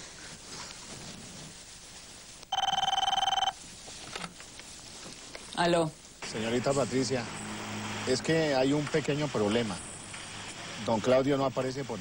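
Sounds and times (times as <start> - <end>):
telephone ringing: 2.5 - 3.6.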